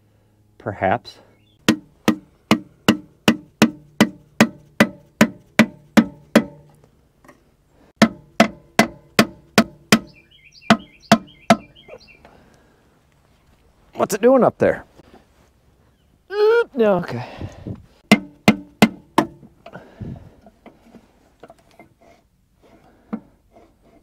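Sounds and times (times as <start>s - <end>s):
hammer tapping on wood: 1.6s - 6.7s, 8.0s - 11.7s, 18.1s - 19.4s.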